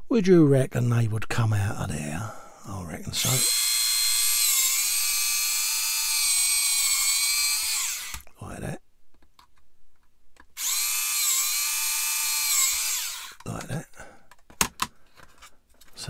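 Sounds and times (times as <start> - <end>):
mini drill whining: 3.2 - 8.3, 10.6 - 13.5.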